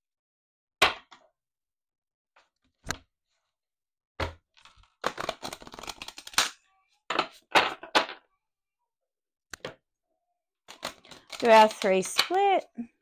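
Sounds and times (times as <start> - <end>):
rapid papery card shuffling: 4.6 - 6.4, 10.7 - 12.1.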